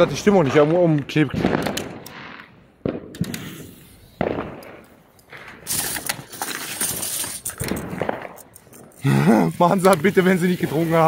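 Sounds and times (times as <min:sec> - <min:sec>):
firework bangs: 0:00.0 - 0:06.0, 0:06.9 - 0:08.4
firework crackling hiss: 0:03.2 - 0:04.5, 0:05.6 - 0:08.3, 0:09.3 - 0:11.0.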